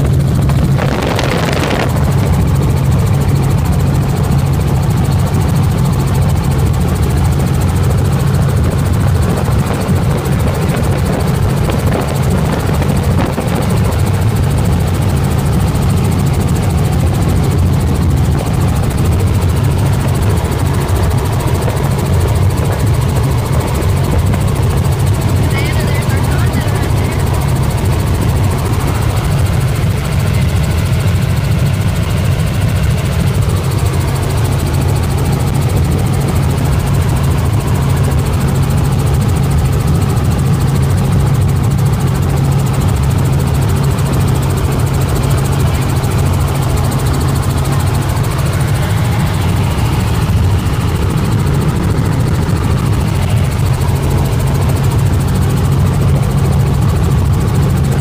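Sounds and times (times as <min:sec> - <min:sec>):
helicopter rotor and engine drone: 0:00.0 - 0:58.0.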